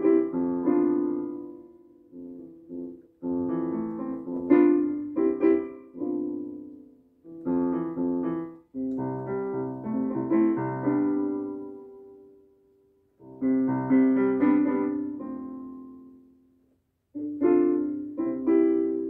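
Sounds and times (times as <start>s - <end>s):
electronic keyboard piano melody: 0.0s - 12.6s, 13.2s - 19.0s.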